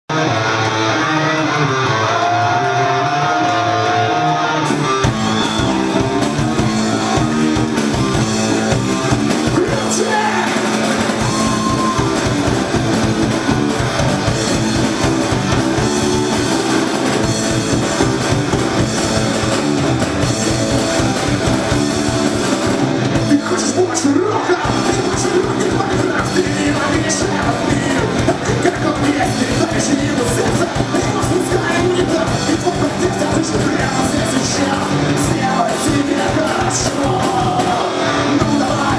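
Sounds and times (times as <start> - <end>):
bass guitar: 0.0 - 38.9
electric guitars: 0.1 - 38.9
drums at a steady beat: 4.6 - 38.9
person singing: 9.3 - 12.4, 23.2 - 38.9.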